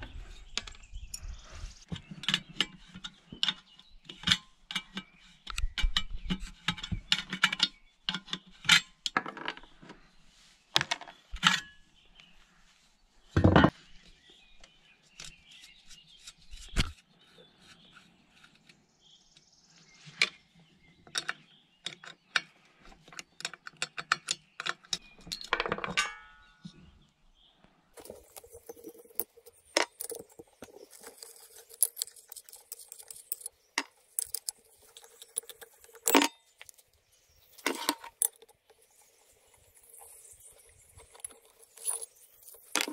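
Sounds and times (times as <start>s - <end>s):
metallic clicks and clinks of wrench: 28.0s - 36.8s.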